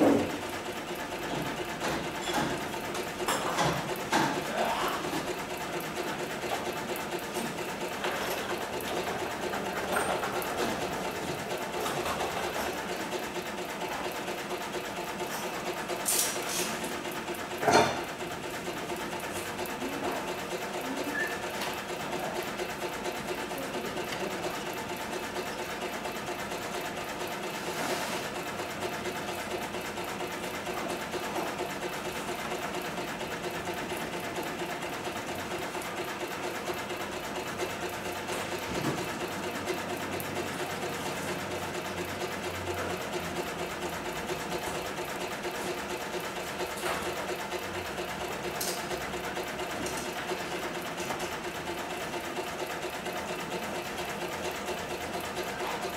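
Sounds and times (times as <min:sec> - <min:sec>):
sewing machine stitching: 0:00.0 - 0:55.9.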